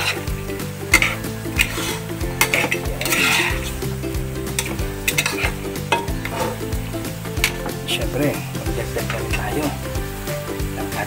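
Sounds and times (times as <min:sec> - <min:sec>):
metal spoon scraping wok: 0:00.0 - 0:06.8
meat sizzling: 0:00.0 - 0:11.0.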